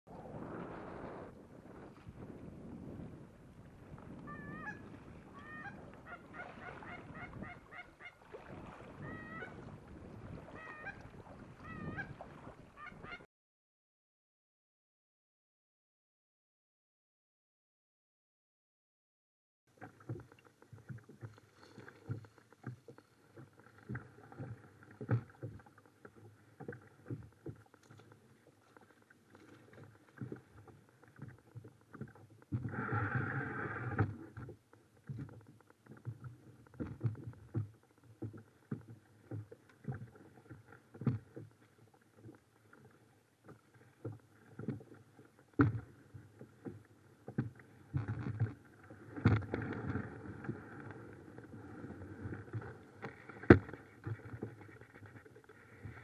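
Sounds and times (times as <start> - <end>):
knocks in a kayak: 53.4 - 54.4.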